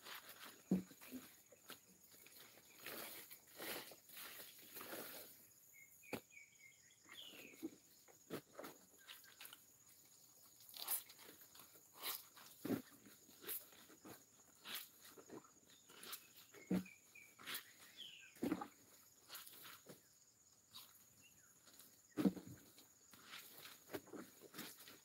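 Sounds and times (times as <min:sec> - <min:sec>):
water splashing and sloshing: 0:10.6 - 0:19.8.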